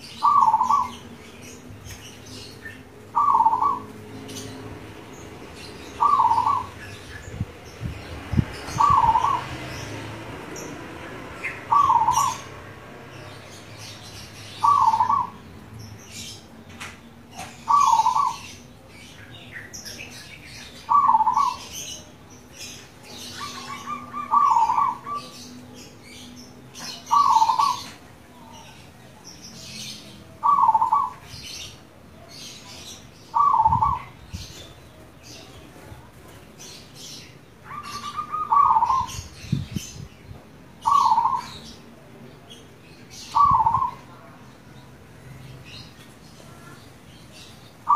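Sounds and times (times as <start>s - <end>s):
dove cooing song: 0.0s - 1.1s, 3.1s - 4.0s, 5.9s - 6.9s, 8.6s - 9.6s, 11.5s - 12.6s, 14.6s - 15.4s, 17.4s - 18.6s, 20.8s - 21.9s, 23.1s - 25.4s, 26.9s - 28.0s, 30.3s - 31.3s, 33.3s - 34.6s, 37.6s - 39.8s, 40.8s - 41.7s, 43.3s - 44.1s
small birds chirping: 0.0s - 47.9s.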